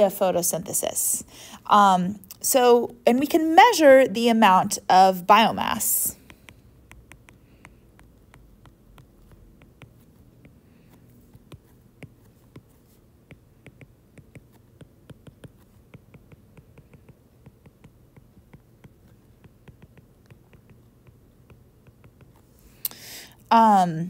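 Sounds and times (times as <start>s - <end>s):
low steady hum: 0.0s - 24.0s
stylus tapping on glass screen: 6.2s - 10.6s, 11.3s - 22.4s.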